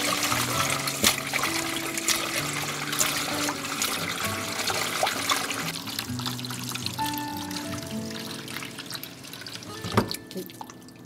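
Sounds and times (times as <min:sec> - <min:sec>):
hands rubbing and rinsing: 0:00.0 - 0:05.8
tap water running into metal bowl: 0:00.0 - 0:10.8
soft background melody: 0:00.0 - 0:11.0.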